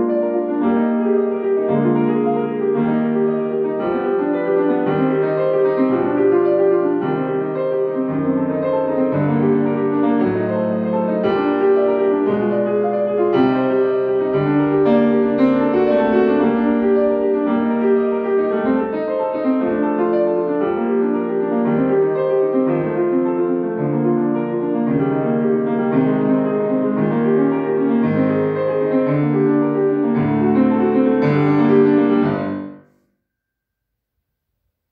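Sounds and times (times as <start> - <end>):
solo classical piano: 0.0 - 33.0.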